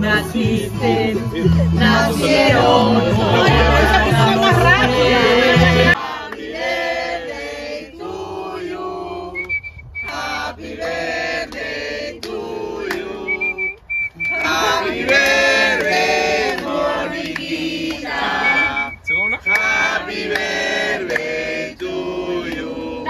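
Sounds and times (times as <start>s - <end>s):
group of people singing: 0.0s - 23.0s
high whistled tone: 9.3s - 10.4s, 13.1s - 14.7s, 18.2s - 19.9s.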